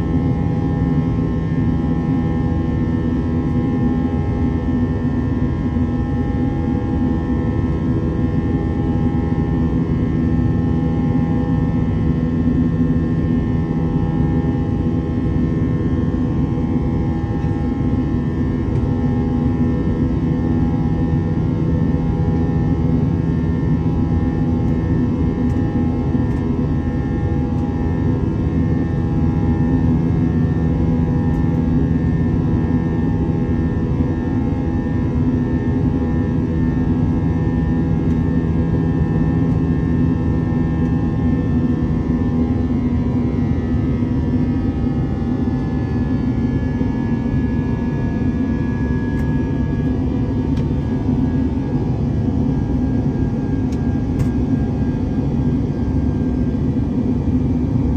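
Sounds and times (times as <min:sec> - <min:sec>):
jet engines roaring in cabin: 0:00.0 - 0:57.9.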